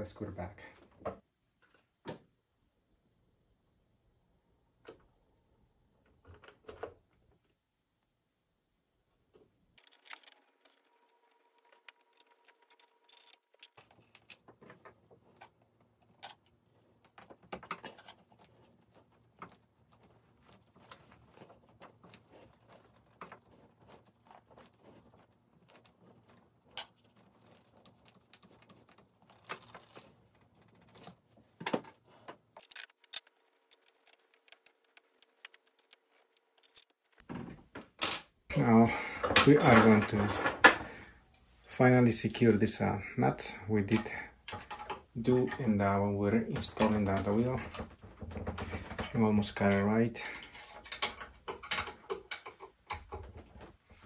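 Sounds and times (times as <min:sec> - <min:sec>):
screws and hand tools clicking: 0:49.0 - 0:53.3.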